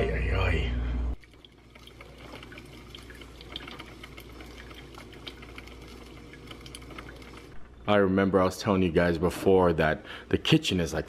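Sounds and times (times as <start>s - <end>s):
coffee maker dripping and hissing: 1.2s - 7.6s.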